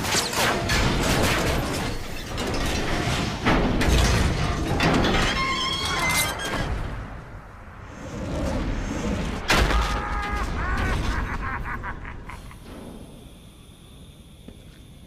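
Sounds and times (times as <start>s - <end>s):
hissing steam: 12.2s - 15.0s.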